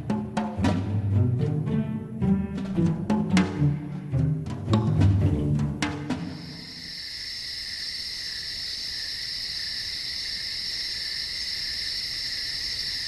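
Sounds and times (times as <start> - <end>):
crickets trilling: 6.1 - 13.0.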